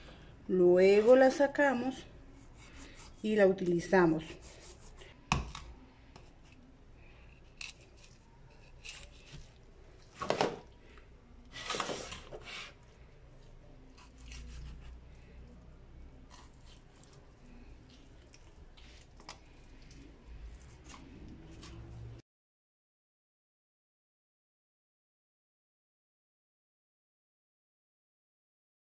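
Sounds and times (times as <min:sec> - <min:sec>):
knife cutting raw chicken: 0:02.4 - 0:03.3, 0:04.2 - 0:06.6, 0:07.3 - 0:09.6, 0:13.9 - 0:15.1, 0:16.2 - 0:22.1.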